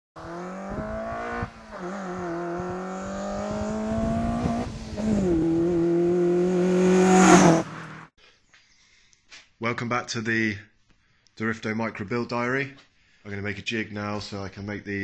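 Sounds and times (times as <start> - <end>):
car engine revving high: 0.2 - 8.1.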